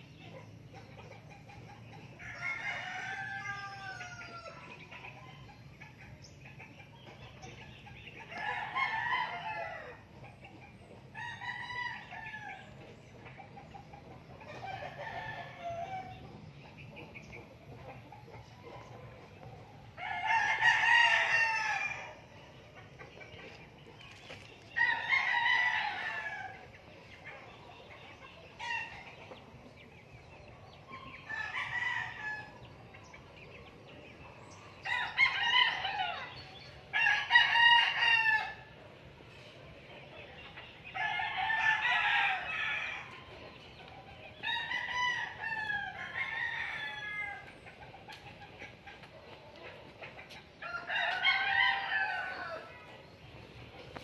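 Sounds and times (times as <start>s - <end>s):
roosters crowing: 1.2s - 5.1s, 7.4s - 10.4s, 11.0s - 13.2s, 14.2s - 16.6s, 17.2s - 22.6s, 24.0s - 27.8s, 30.9s - 32.9s, 34.5s - 38.8s, 40.7s - 48.0s, 50.0s - 53.3s.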